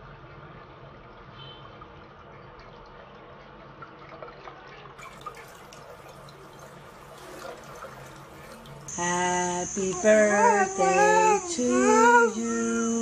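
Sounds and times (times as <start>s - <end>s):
tap water splashing: 1.4s - 8.9s.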